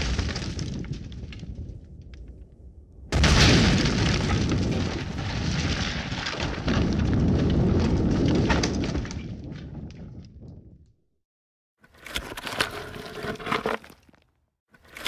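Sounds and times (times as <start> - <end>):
demolition rumble: 0.0 - 11.0
falling debris clattering: 3.1 - 10.0.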